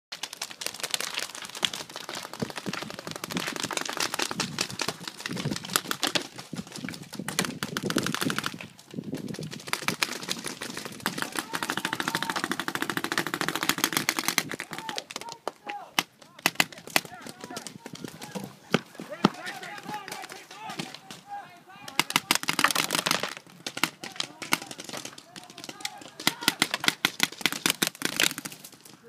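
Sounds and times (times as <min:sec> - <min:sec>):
paintball markers firing rapidly: 0:00.2 - 0:21.2, 0:21.8 - 0:28.9.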